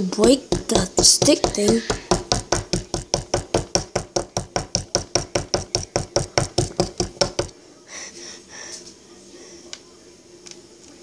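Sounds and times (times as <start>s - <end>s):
stick chipping hard plaster: 0.2s - 7.5s.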